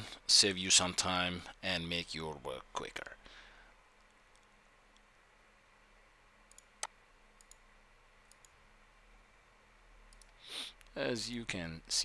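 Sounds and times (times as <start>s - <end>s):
faint computer mouse clicks: 6.5s - 7.6s, 8.2s - 8.6s.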